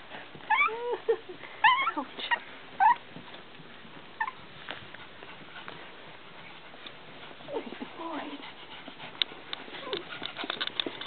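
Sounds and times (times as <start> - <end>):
puppies yipping and whimpering: 0.5 - 1.0, 1.6 - 3.0, 4.2 - 4.4.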